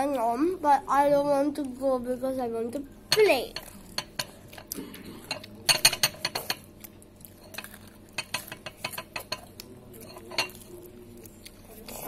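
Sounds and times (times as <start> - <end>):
tableware clattering: 5.1 - 6.7, 7.4 - 10.7.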